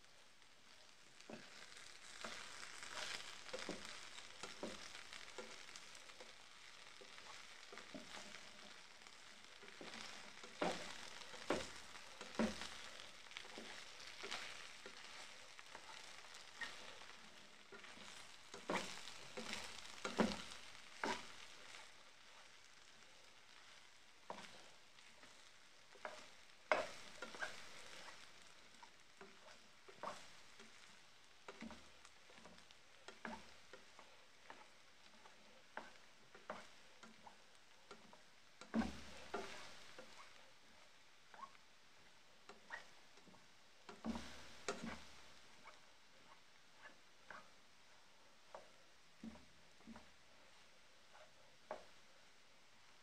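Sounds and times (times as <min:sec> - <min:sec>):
potatoes sizzling in oil: 0:00.0 - 0:53.0
spatula scraping and knocking pan: 0:01.2 - 0:53.0.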